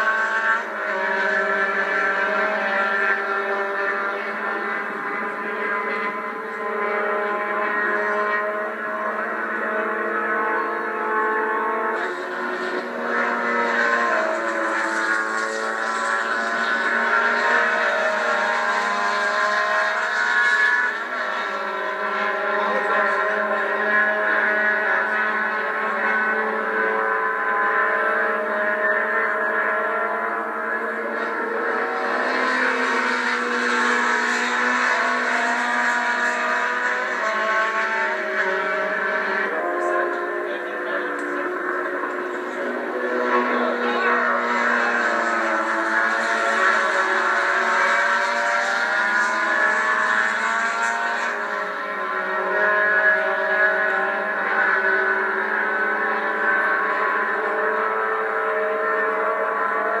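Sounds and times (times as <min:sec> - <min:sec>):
distant race car engines: 0:00.0 - 1:00.0.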